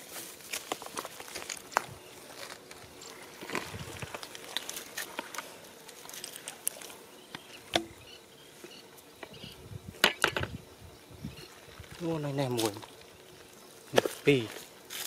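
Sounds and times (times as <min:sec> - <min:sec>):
bare feet on dry mud: 0:00.0 - 0:07.7, 0:11.5 - 0:15.0
bucket set down rattling: 0:10.0 - 0:10.5.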